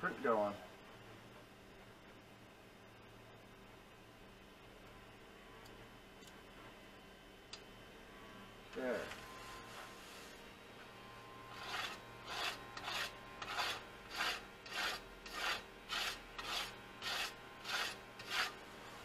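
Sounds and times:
hand rubbing scratchy surface: 11.5s - 19.0s.

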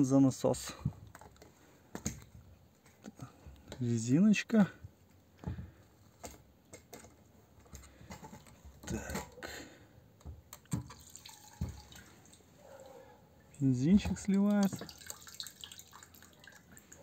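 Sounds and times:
plastic clicks and knocks: 1.0s - 3.8s
petrol dripping and trickling: 10.5s - 17.0s.

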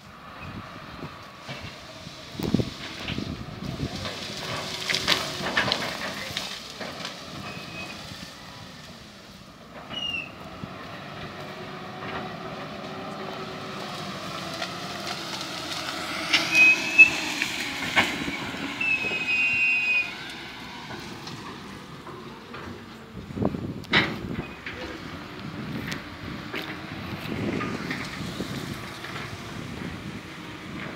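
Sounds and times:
diesel engine running: 0.0s - 30.9s
high metallic squeals: 16.3s - 17.5s, 18.2s - 20.3s.

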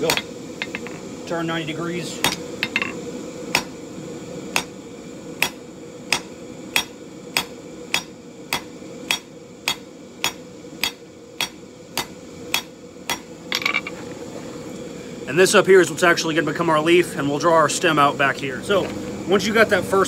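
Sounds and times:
steady hum: 0.0s - 20.0s
hammer striking steel on anvil: 2.2s - 3.8s, 5.4s - 13.8s.

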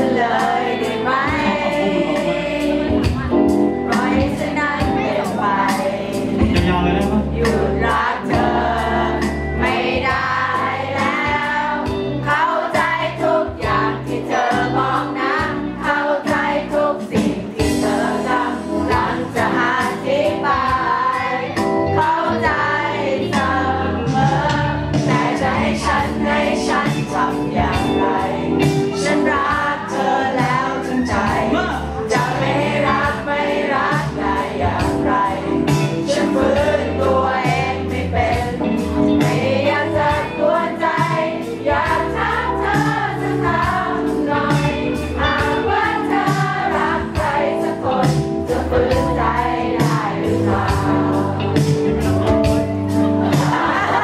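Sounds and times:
pop backing track with beat: 0.0s - 54.0s
man singing into microphone: 1.4s - 2.8s, 6.4s - 7.6s.

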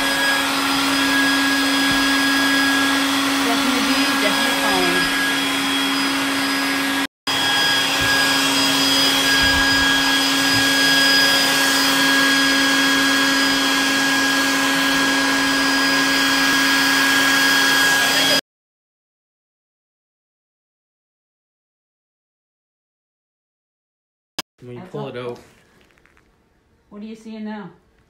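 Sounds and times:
vacuum motor hum with suction hiss: 0.0s - 18.4s.

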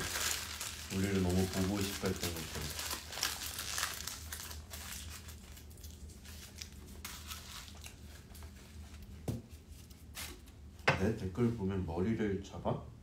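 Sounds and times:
paper wrapper crinkling and tearing: 0.0s - 9.1s.

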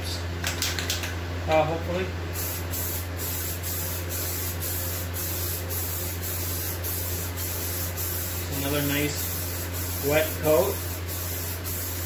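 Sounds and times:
steady low hum: 0.0s - 12.0s
aerosol can spraying: 2.4s - 12.0s.

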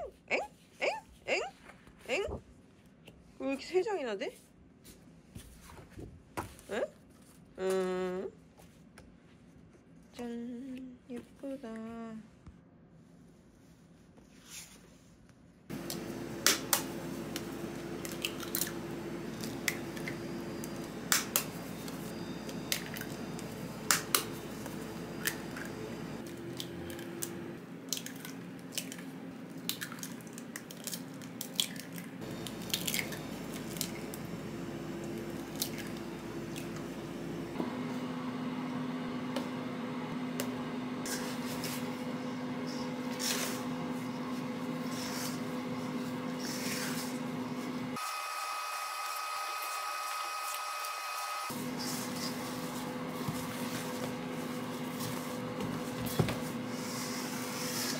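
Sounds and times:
steady hum: 15.7s - 48.0s.

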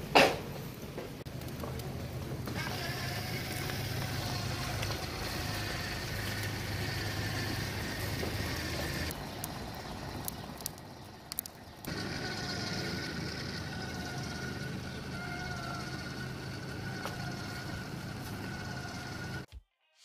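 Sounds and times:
small motor humming and whining: 1.7s - 10.4s, 11.0s - 19.5s
sharp clicks: 10.2s - 11.9s.

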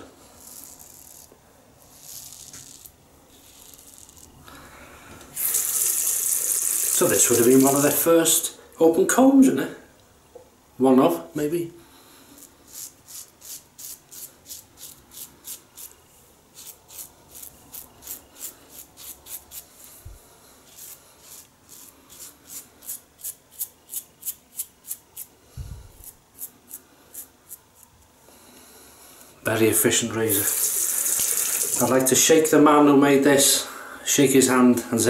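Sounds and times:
razor scraping through stubble: 0.2s - 4.4s, 12.4s - 20.0s, 20.6s - 25.3s, 26.0s - 27.9s.

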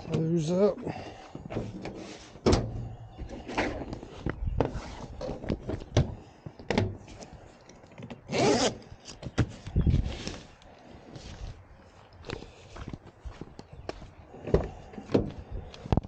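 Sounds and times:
zipper being zipped: 8.3s - 8.8s.

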